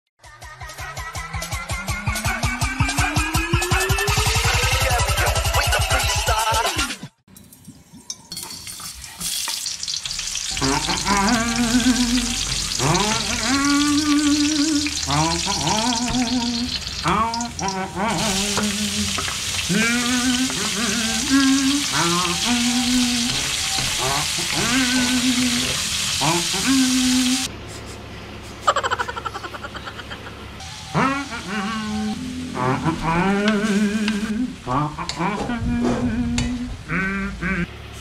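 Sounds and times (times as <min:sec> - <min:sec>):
oil sizzling in a wok: 0:07.8 - 0:27.5.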